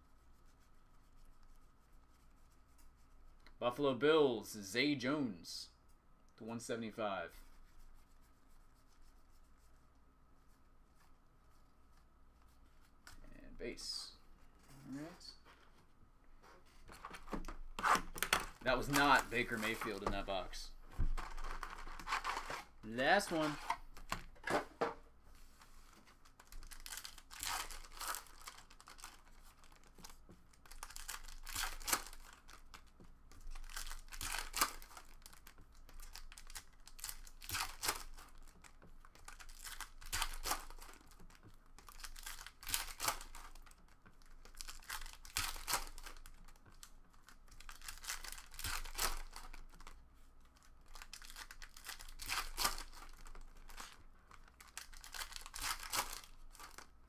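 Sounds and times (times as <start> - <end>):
foil wrappers crinkling and tearing: 26.2 - 50.0, 50.6 - 56.9.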